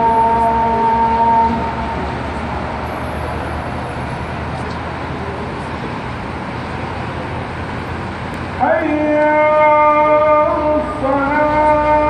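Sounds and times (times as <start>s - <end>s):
amplified call to prayer: 0.0s - 2.2s, 8.6s - 12.0s
road traffic rumble: 0.0s - 12.0s.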